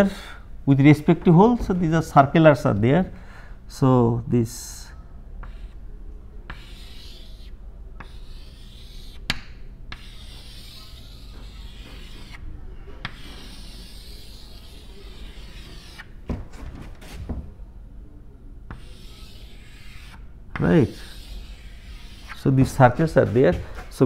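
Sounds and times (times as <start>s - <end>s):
chalk tapping on board: 5.4s - 5.7s, 6.5s - 12.4s, 18.7s - 22.4s
chalk scraping on blackboard: 5.4s - 5.8s, 6.5s - 12.4s, 13.0s - 16.1s, 18.7s - 23.9s.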